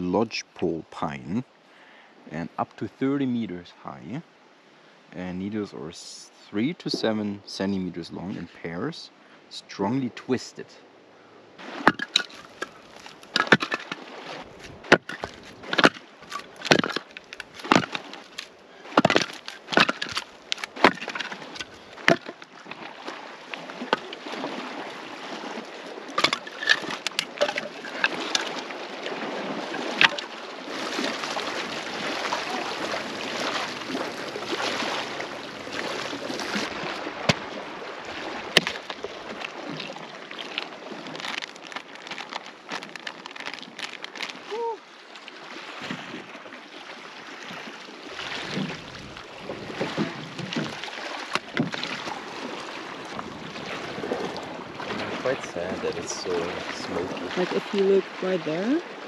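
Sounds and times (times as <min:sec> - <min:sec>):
logs scraping and rustling: 0:11.6 - 0:29.2, 0:38.2 - 0:44.5, 0:48.3 - 0:52.2
firewood logs knocking: 0:11.8 - 0:14.0, 0:14.6 - 0:22.4, 0:26.2 - 0:28.6, 0:37.2 - 0:37.5, 0:38.5 - 0:39.1.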